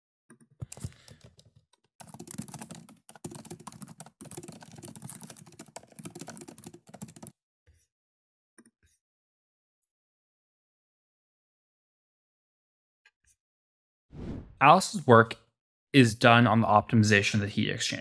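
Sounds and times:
computer keyboard typing: 0.6 - 7.3.

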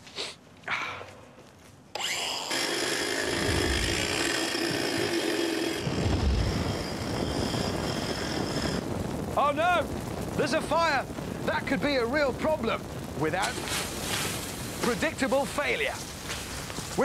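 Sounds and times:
angle grinder cutting steel: 1.9 - 8.8
deep rumble of fire: 3.3 - 17.0.

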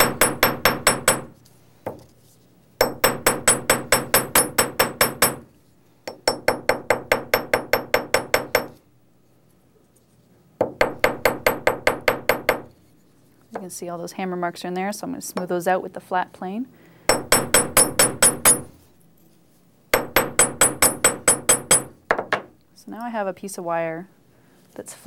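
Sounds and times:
hammer striking wire on steel block: 0.0 - 1.3, 2.8 - 5.5, 6.1 - 8.8, 10.6 - 12.7, 19.9 - 22.4.

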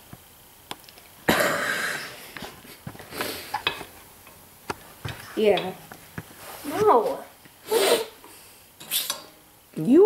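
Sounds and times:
person coughing: 1.3 - 2.2.

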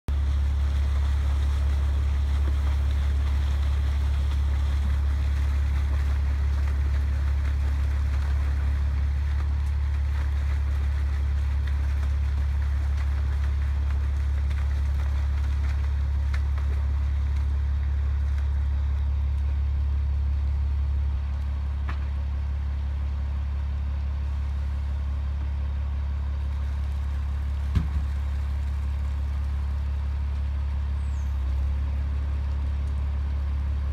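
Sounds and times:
water pouring and splashing: 0.1 - 18.8
truck pump low drone: 0.1 - 33.9.

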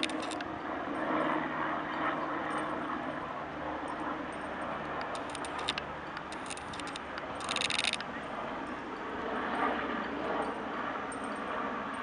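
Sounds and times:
sharp clicks: 0.0 - 0.5, 5.0 - 8.1
helicopter flying overhead: 0.0 - 12.0.

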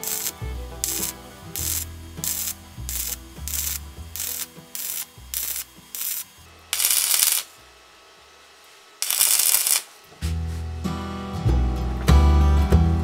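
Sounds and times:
welding arc crackling: 0.0 - 10.2.

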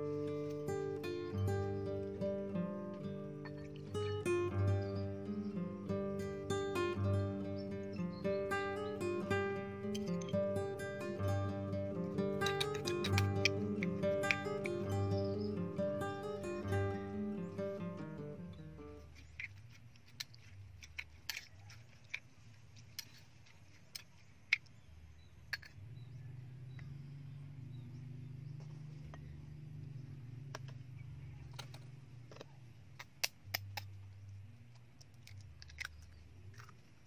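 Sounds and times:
low steady hum: 0.0 - 37.0
metal spoon clinking on ceramic bowls: 12.4 - 14.8.

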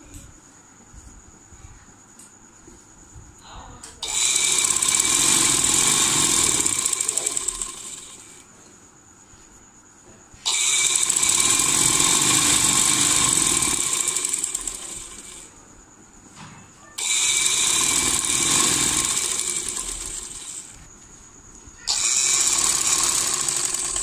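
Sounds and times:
sewing machine stitching: 4.0 - 8.4, 10.5 - 15.5, 17.0 - 20.8, 21.9 - 24.0.

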